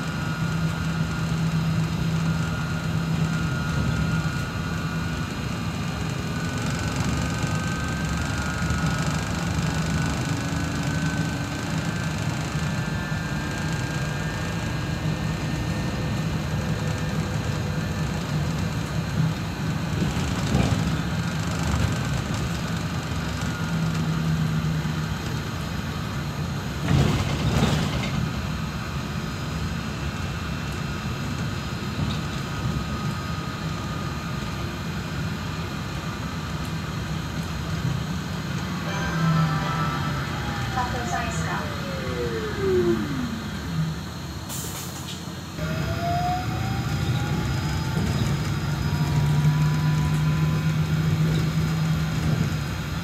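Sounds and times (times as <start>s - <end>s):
trolleybus ride rumble: 0.0s - 53.0s
electric drive whine: 36.1s - 44.5s.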